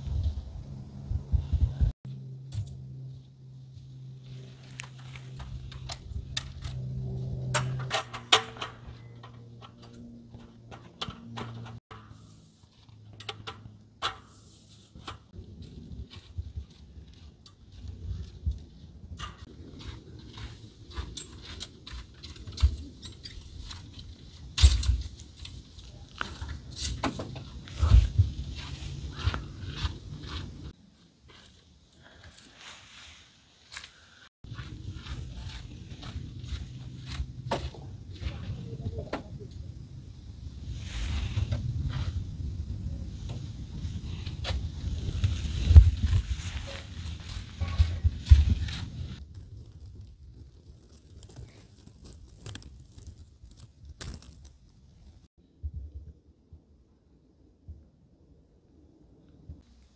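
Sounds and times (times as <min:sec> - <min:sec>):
footsteps on gravel: 0:27.4 - 0:31.7, 0:33.7 - 0:38.6.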